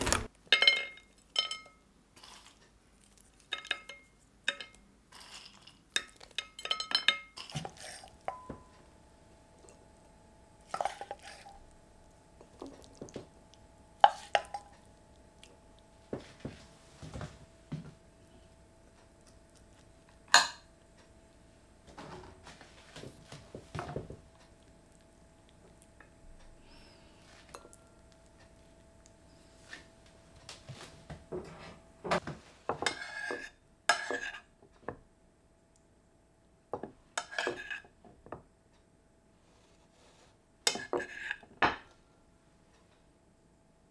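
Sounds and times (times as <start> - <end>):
cutlery clinking on plates: 0.5 - 1.8, 3.5 - 8.8, 20.3 - 20.7, 32.7 - 34.5, 36.8 - 37.9, 40.7 - 41.9.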